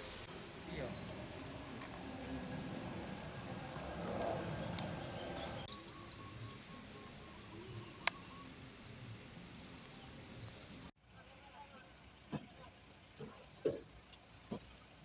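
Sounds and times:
high insect drone: 0.0s - 10.9s
wavering chirps: 0.2s - 10.9s.

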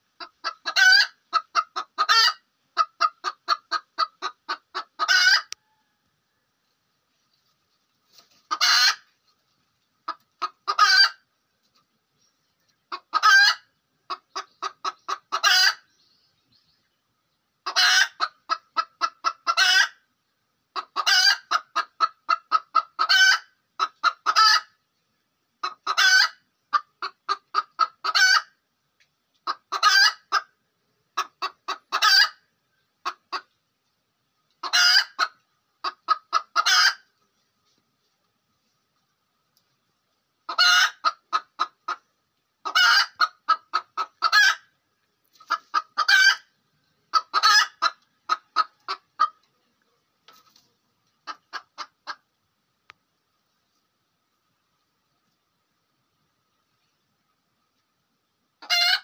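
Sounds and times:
hen cackling: 0.2s - 5.8s, 8.5s - 9.1s, 10.1s - 11.2s, 12.9s - 15.9s, 17.6s - 20.0s, 20.8s - 24.8s, 25.6s - 28.6s, 29.4s - 30.5s, 31.2s - 32.4s, 34.6s - 37.1s, 40.5s - 44.7s, 45.4s - 46.5s, 47.1s - 49.5s, 58.6s - 59.0s.

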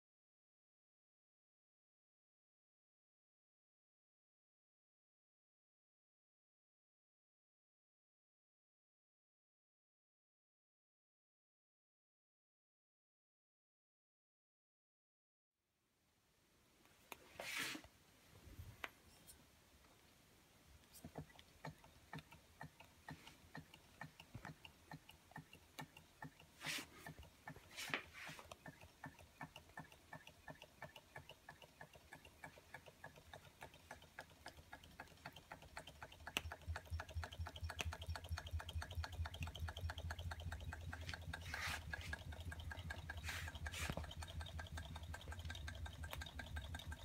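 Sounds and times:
model engine ticking: 20.9s - 47.0s
low hum: 35.6s - 47.0s.

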